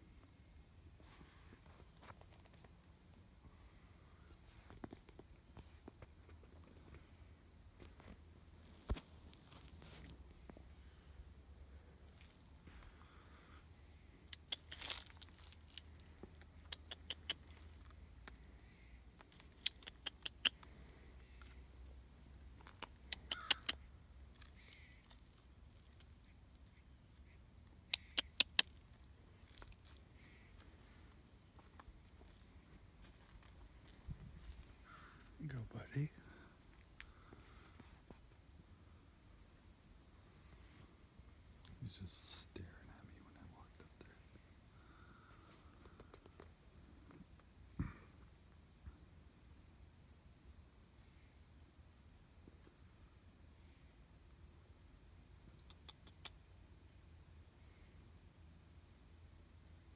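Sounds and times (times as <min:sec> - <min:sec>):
sharp clicks and ticks: 0:19.3 - 0:20.7
high-pitched insect chirring: 0:22.7 - 0:26.0.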